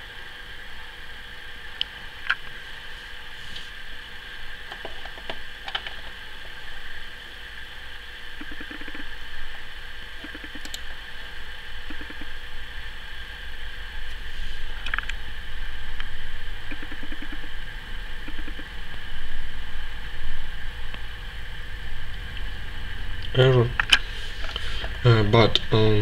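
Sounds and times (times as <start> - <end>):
low rumble and hiss: 0.0 - 26.0
short ticking patters: 8.4 - 9.1, 11.8 - 12.4, 16.6 - 17.5.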